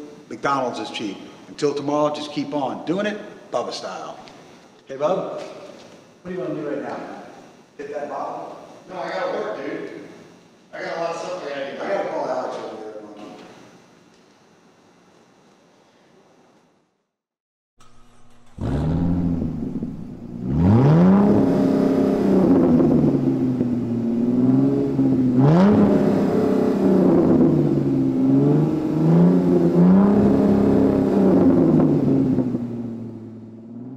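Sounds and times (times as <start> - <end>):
car engine revving: 17.8 - 33.9.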